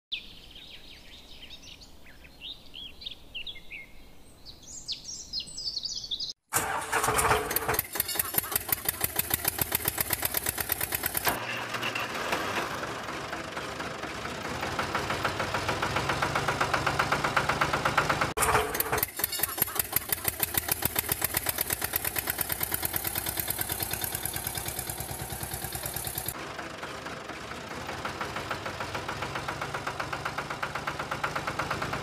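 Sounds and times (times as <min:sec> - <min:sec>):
birds chirping: 0:00.1 - 0:06.4
tractor engine knocking: 0:06.6 - 0:32.0.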